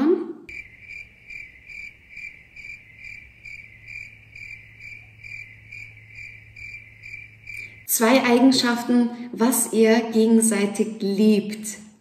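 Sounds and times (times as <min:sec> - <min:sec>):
faint steady hum: 0:00.4 - 0:09.6
crickets chirping: 0:00.5 - 0:08.6.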